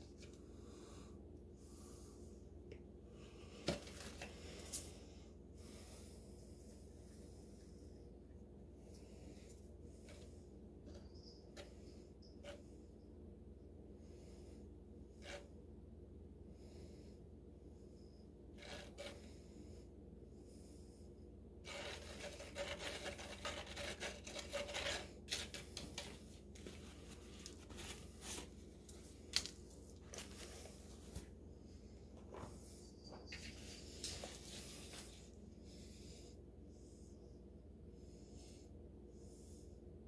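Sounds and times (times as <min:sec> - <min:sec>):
stick scraping concrete in plastic cup: 0:18.6 - 0:19.3, 0:21.7 - 0:28.5.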